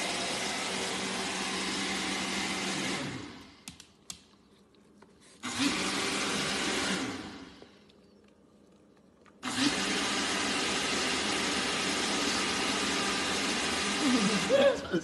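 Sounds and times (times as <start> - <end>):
motorised appliance whirring: 9.4 - 14.6.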